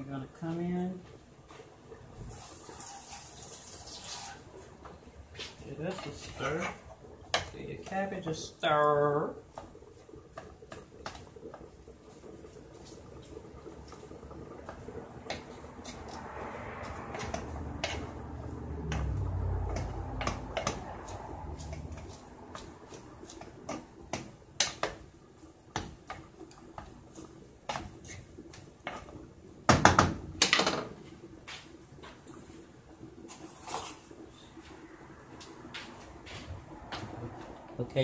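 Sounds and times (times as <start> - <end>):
spoon stirring in pot: 2.4 - 29.2.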